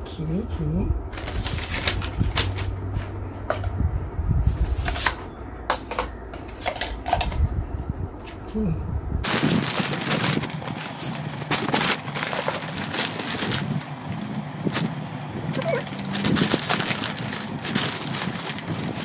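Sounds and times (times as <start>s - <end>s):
plastic parts clicking and knocking: 4.8s - 7.4s, 11.5s - 13.6s
plastic bag crinkling: 9.2s - 15.0s, 15.6s - 19.0s.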